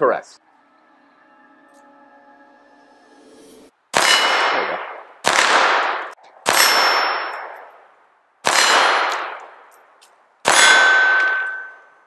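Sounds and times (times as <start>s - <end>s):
pistol shots: 3.9s - 7.7s, 8.4s - 9.6s, 10.4s - 11.7s
steel target ringing clang: 4.0s - 5.4s, 10.5s - 12.0s.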